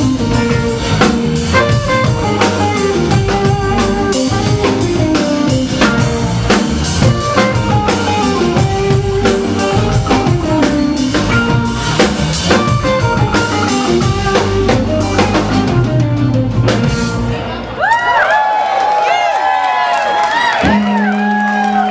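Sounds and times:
drum kit steady beat: 0:00.0 - 0:17.4
live rock band playing: 0:00.0 - 0:18.0, 0:20.5 - 0:21.9.

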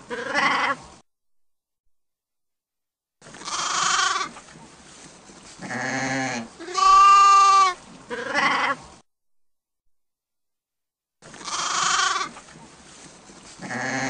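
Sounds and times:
sheep bleating: 0:03.4 - 0:04.3, 0:05.6 - 0:08.8, 0:11.4 - 0:12.3.

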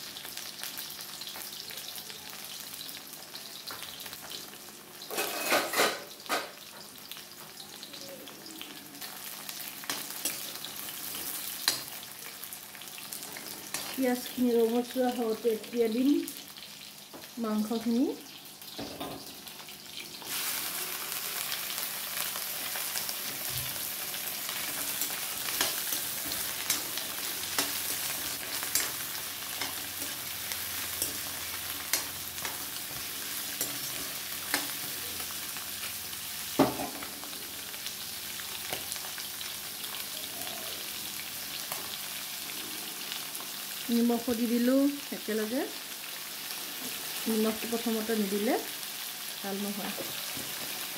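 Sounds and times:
chicken sizzling in hot oil: 0:00.0 - 0:50.9
metal ladle scraping pan: 0:05.1 - 0:06.1.

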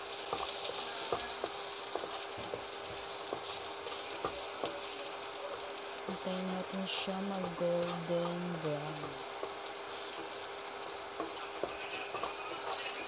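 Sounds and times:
garlic sizzling in hot oil: 0:00.0 - 0:13.0.

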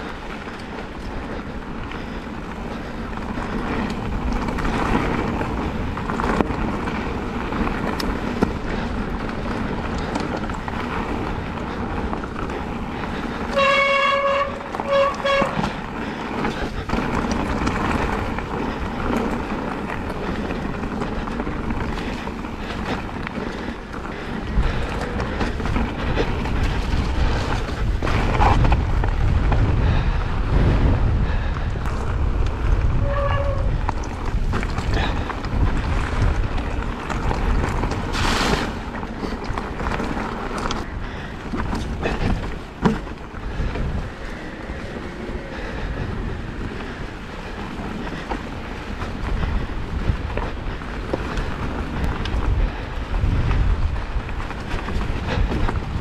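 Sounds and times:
tyre and wind noise: 0:00.0 - 0:56.0
honking tone: 0:13.5 - 0:15.8.

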